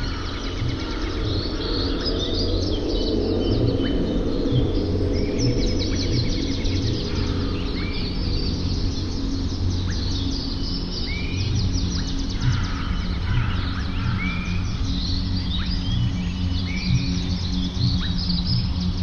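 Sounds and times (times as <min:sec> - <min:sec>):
birds chirping and whistling: 0:00.0 - 0:19.0
soft background music: 0:00.0 - 0:19.0.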